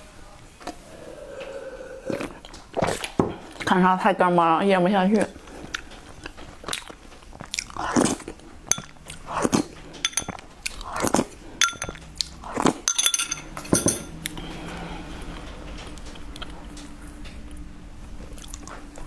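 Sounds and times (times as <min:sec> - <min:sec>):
metal spoon clinking ceramic bowl: 0:08.7 - 0:09.0, 0:10.0 - 0:10.4, 0:11.6 - 0:12.0, 0:12.9 - 0:14.2.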